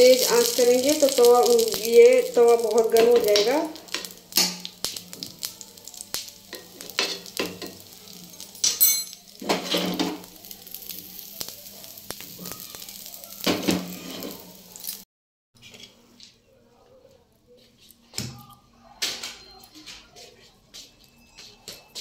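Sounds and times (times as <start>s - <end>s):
batter sizzling and popping: 0.0s - 15.1s.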